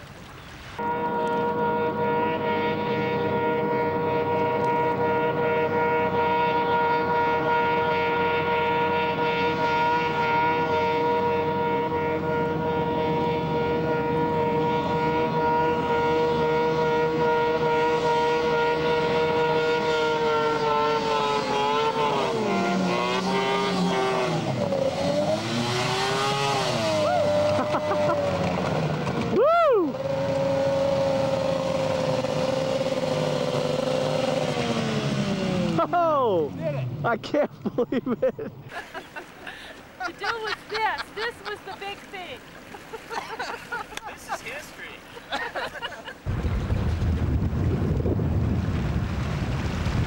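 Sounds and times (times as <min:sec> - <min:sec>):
snowmobile engine: 0:00.8 - 0:50.0.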